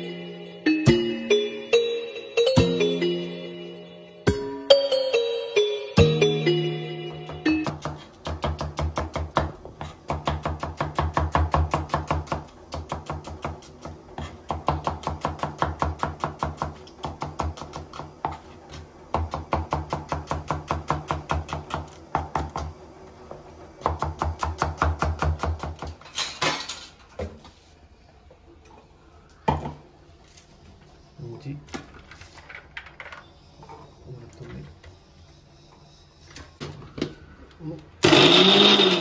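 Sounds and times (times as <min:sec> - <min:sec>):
knife chopping on plastic board: 0:07.6 - 0:18.4.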